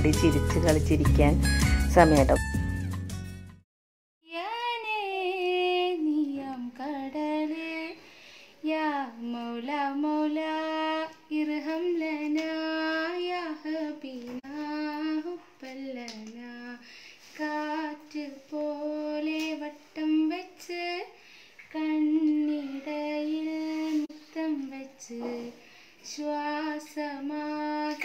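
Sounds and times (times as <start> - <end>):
woman and child singing: 4.3 - 8.0, 8.6 - 28.0.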